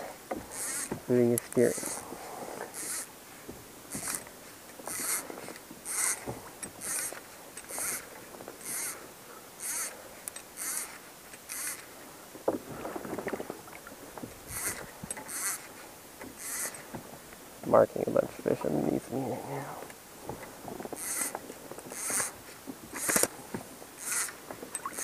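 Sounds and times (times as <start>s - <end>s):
rustle: 0.0s - 25.0s
pedal drive squeaking: 0.5s - 1.0s, 16.3s - 16.8s, 21.0s - 22.3s, 24.0s - 25.0s.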